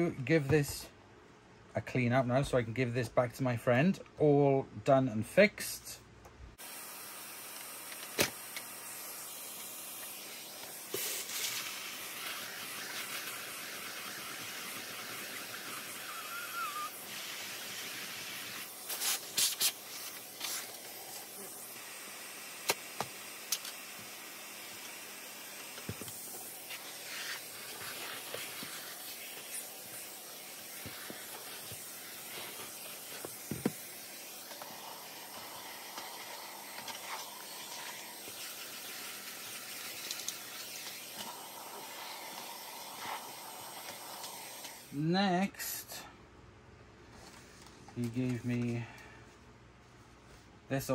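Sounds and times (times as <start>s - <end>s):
steady hiss: 6.6s - 46.1s.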